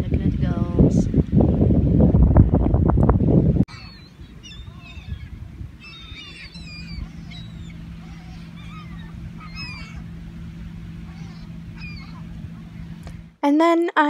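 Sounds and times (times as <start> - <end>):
steady low hum: 0.0 - 13.5
gulls calling: 3.7 - 13.4.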